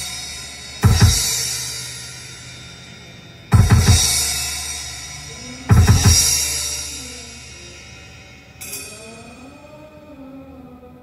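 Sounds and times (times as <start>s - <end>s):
heavy drum hits: 0.0s - 8.2s
cymbal crash: 0.0s - 9.6s.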